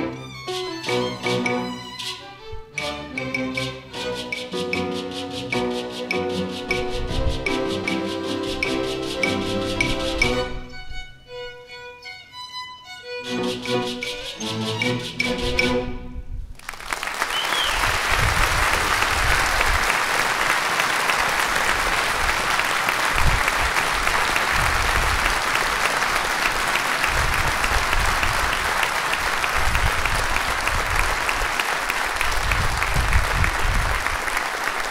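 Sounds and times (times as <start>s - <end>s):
orchestra playing: 0.0s - 16.4s
audience applauding: 16.6s - 34.9s
short high whistle: 17.3s - 17.9s.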